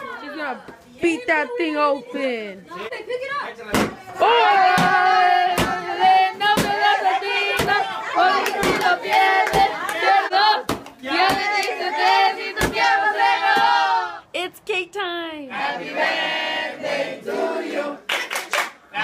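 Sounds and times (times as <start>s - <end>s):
stick thumping pinata: 3.7s - 13.9s
group singing: 4.2s - 14.2s, 15.5s - 18.1s.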